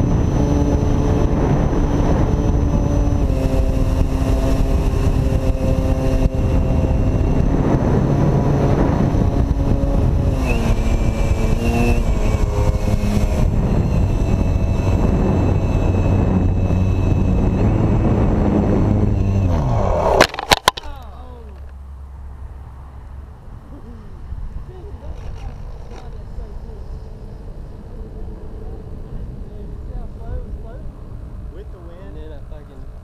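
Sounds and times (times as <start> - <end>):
electric motor propeller buzzing: 0.0 - 20.8
wind rush: 0.0 - 20.8.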